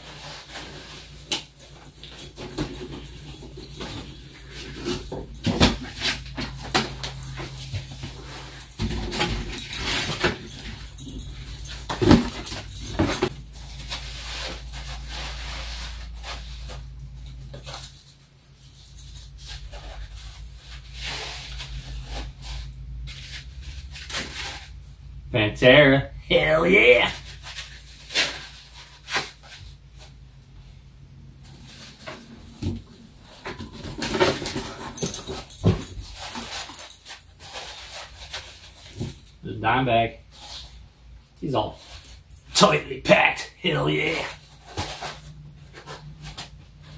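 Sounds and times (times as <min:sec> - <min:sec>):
cardboard packaging rustling: 0:00.0 - 0:18.1, 0:44.2 - 0:46.9.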